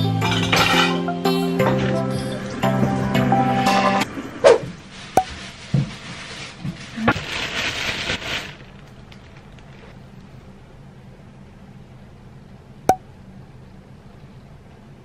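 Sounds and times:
plastic bag crinkling: 0:04.9 - 0:10.2.

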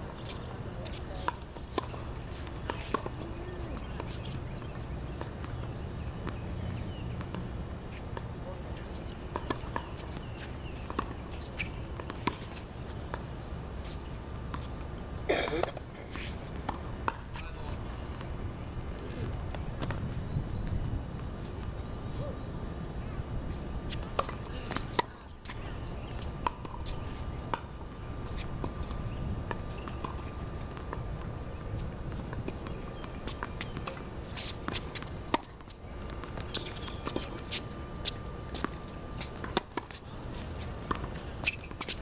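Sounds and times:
faint voices: 0:00.2 - 0:04.5.

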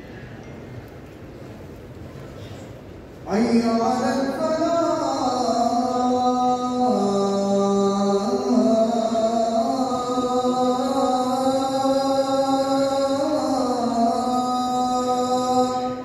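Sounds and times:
man chanting call to prayer: 0:03.2 - 0:16.0.

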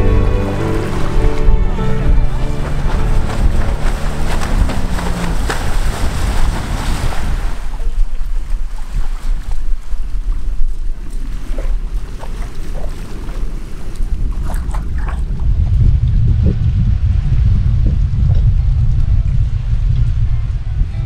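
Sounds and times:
water rushing and splashing: 0:00.0 - 0:16.7
wind rumbling on microphone: 0:00.0 - 0:21.0.

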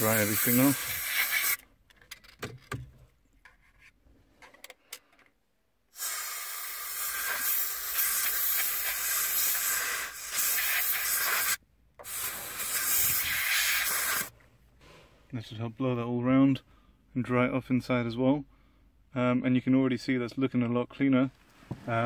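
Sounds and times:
compressed air hissing from straw: 0:00.0 - 0:01.6, 0:05.9 - 0:15.2.

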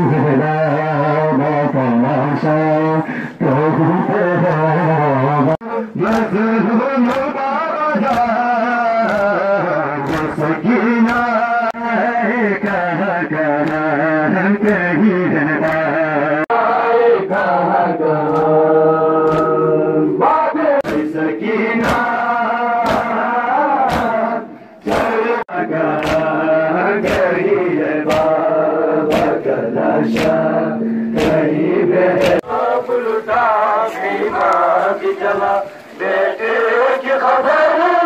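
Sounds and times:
men chanting in unison: 0:00.0 - 0:38.0
hands slapping chests: 0:06.0 - 0:06.4, 0:07.0 - 0:07.4, 0:08.0 - 0:11.5, 0:13.6 - 0:15.0, 0:15.6 - 0:16.1, 0:18.2 - 0:18.6, 0:19.2 - 0:19.7, 0:20.8 - 0:21.1, 0:21.8 - 0:23.2, 0:23.8 - 0:24.3, 0:24.9 - 0:25.2, 0:25.9 - 0:28.4, 0:29.0 - 0:31.6, 0:32.2 - 0:32.4.

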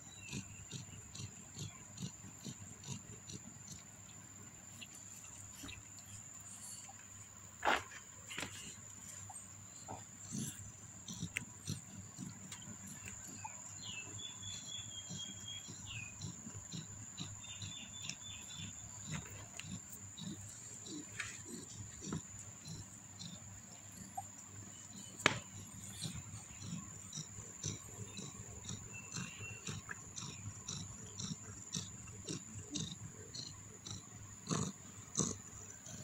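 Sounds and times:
kittens squeaking: 0:25.8 - 0:31.3.

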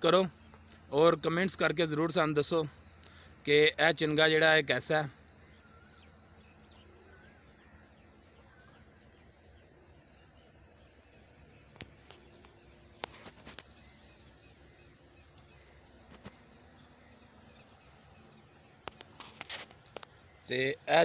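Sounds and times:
steady high hiss: 0:00.0 - 0:21.0.

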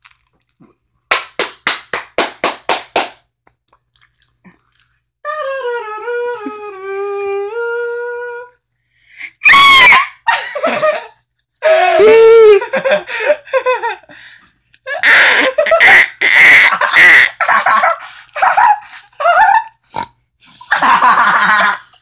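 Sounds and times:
person humming: 0:05.2 - 0:08.6.

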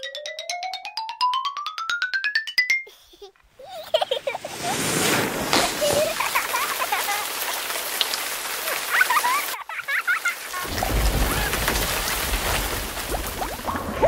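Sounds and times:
liquid spraying and spattering: 0:03.9 - 0:14.0.

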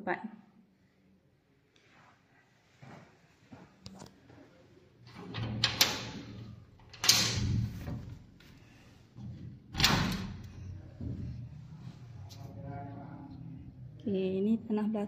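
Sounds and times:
door bolt clicking and scraping: 0:05.1 - 0:08.2, 0:09.7 - 0:10.6.

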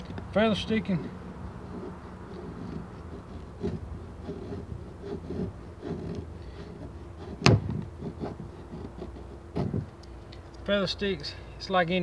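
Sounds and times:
knife scraping wood: 0:00.0 - 0:10.1
sharp wood crack: 0:07.4 - 0:07.9.

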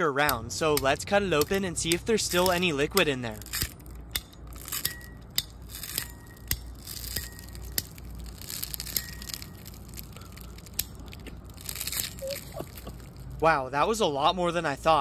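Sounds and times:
sharp cracks of ball splitting: 0:00.2 - 0:13.4
cutter crunching golf ball: 0:00.2 - 0:13.5.

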